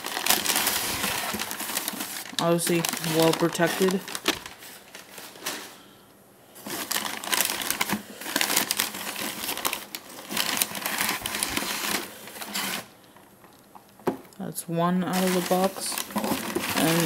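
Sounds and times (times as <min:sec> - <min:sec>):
paper and cardboard rustling: 0:00.0 - 0:05.8, 0:06.6 - 0:12.9, 0:15.1 - 0:17.0.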